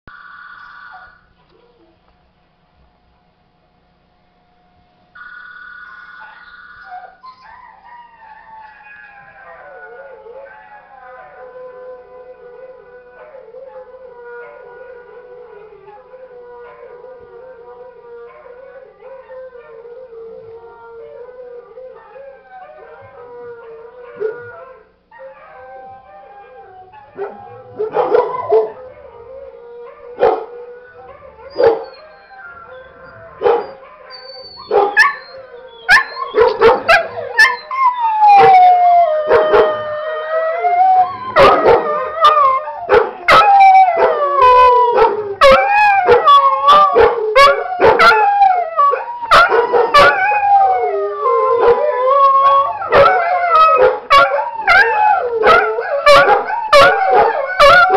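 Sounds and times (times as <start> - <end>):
recorded dogs barking: 5.9 - 9.5, 27.0 - 29.3, 29.9 - 37.7, 41.0 - 57.9
dog howling: 6.2 - 57.9.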